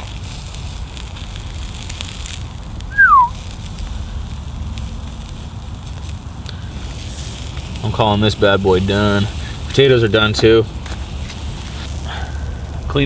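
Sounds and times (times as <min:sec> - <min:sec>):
campfire crackling: 0:00.0 - 0:13.0
steak sizzling on a grill: 0:00.0 - 0:13.0
falling whistle: 0:02.9 - 0:03.4.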